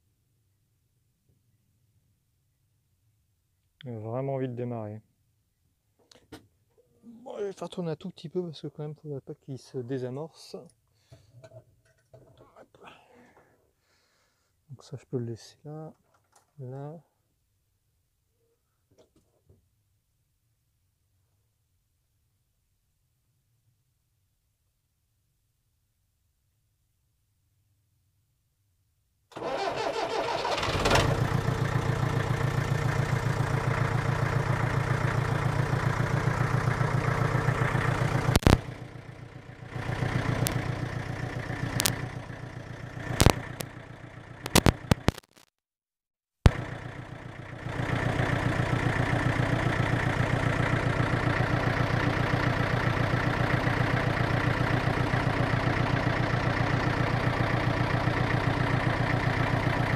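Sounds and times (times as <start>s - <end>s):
diesel engine starting and idling: 29.3s - 45.0s, 46.5s - 59.9s
sharp clicks: 38.3s - 38.7s, 41.7s - 42.0s, 43.2s - 43.7s, 44.4s - 45.5s.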